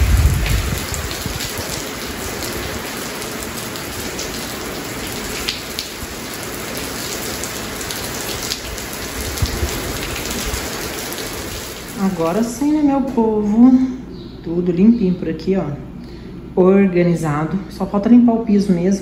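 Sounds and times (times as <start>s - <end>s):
rain on concrete: 0.0s - 12.6s.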